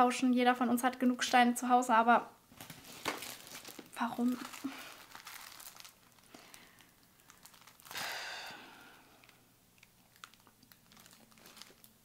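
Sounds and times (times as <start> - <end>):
breathy sigh: 7.9 - 9.4.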